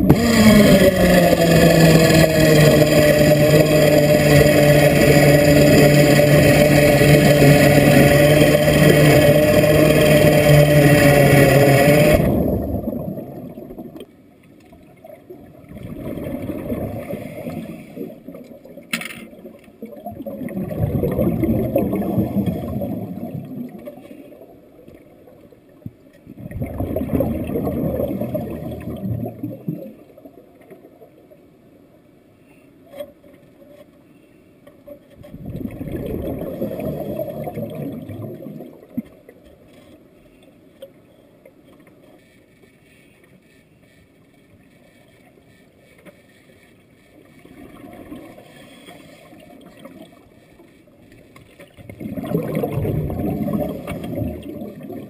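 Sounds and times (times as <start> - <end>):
underwater exhaled bubbles: 0.0 - 14.1, 14.8 - 31.1, 35.2 - 39.4, 47.4 - 50.4, 51.5 - 55.0.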